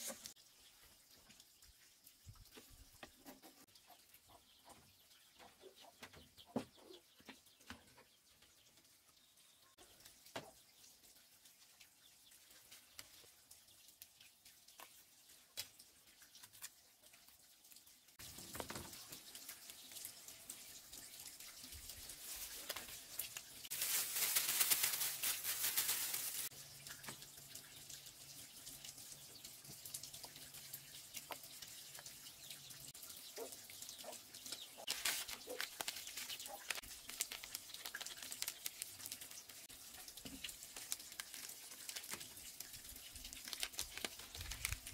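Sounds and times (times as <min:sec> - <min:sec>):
plastic bag crinkling: 0:22.0 - 0:26.5, 0:34.8 - 0:39.5, 0:40.3 - 0:44.9.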